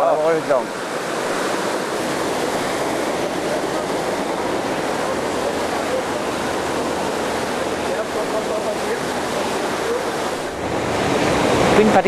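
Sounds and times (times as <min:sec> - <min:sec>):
stream rushing: 0:00.0 - 0:12.0.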